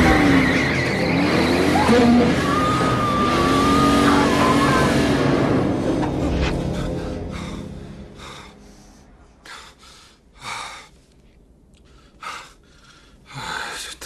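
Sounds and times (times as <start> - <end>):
man breathing heavily: 6.6 - 11.2, 11.8 - 13.9.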